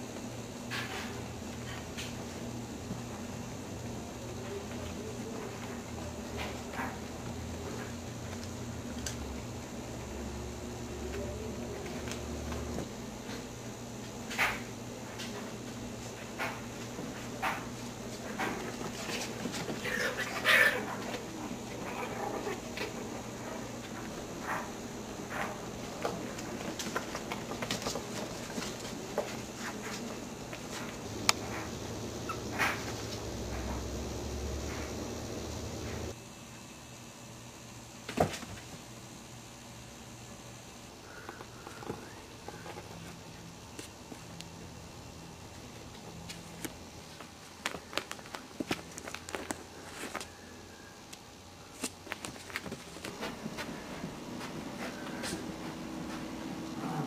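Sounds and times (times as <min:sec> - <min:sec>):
puppy paws pattering: 0:15.0 - 0:33.9, 0:45.8 - 0:50.4, 0:51.8 - 0:57.0
puppies making small sounds: 0:19.0 - 0:25.5, 0:31.3 - 0:33.8.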